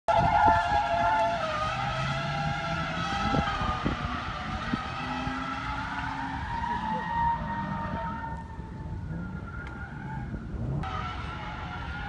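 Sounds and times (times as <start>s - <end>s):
rc car engine high revs: 0.7s - 8.4s.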